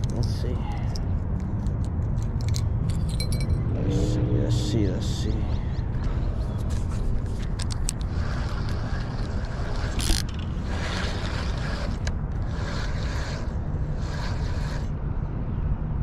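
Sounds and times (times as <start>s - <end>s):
wind buffeting microphone: 0.0s - 16.0s
light reel clicks: 6.0s - 13.4s
fishing reel cranking: 7.6s - 14.9s.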